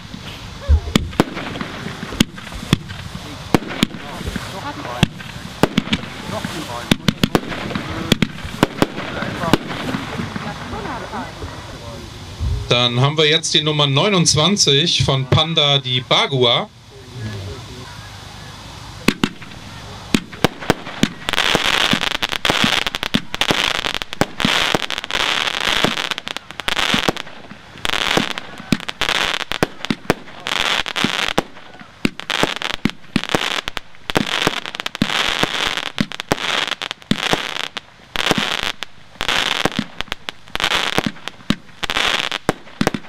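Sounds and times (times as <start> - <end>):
firework shots: 0.0 - 13.1, 18.7 - 43.0
crackling firework stars: 0.0 - 43.0.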